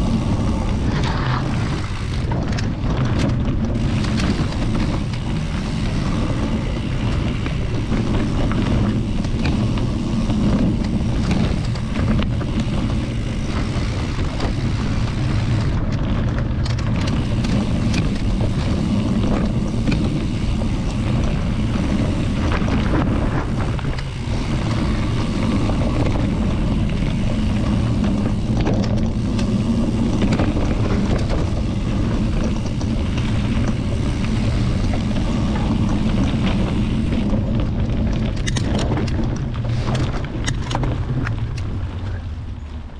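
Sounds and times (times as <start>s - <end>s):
small clicks and rattles: 0.0s - 42.8s
wind buffeting microphone: 0.0s - 42.9s.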